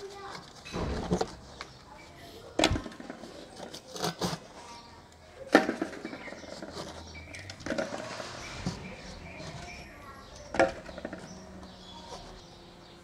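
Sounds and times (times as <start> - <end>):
sharp knocks and clatters: 0.3 - 1.9, 5.5 - 11.4.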